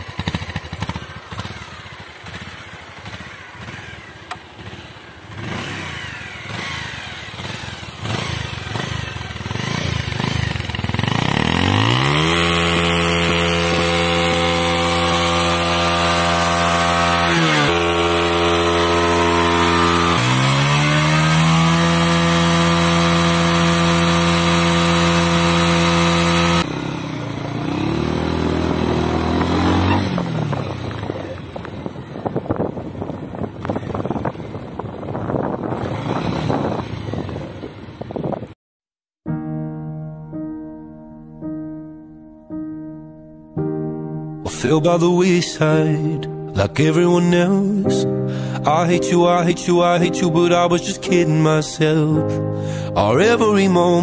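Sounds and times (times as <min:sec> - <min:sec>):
motorcycle engine revving: 0:00.0 - 0:38.6.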